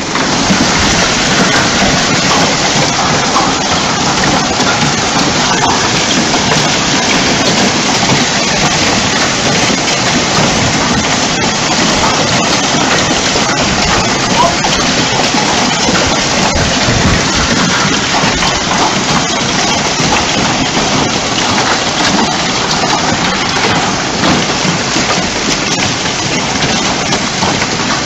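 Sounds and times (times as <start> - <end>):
hailstones pelting on cars: 0.0 - 28.0
sharp clicks of hailstones: 0.0 - 28.0.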